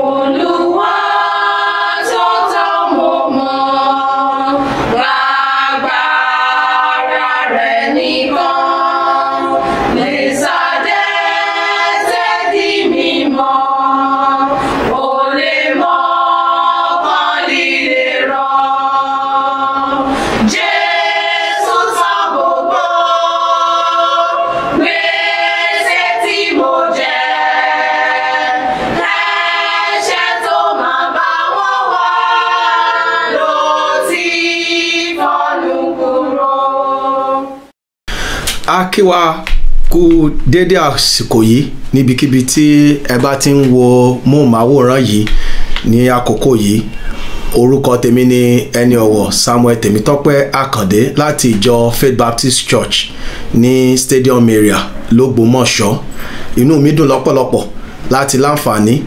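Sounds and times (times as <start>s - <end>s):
women's choir singing a cappella: 0.0s - 37.7s.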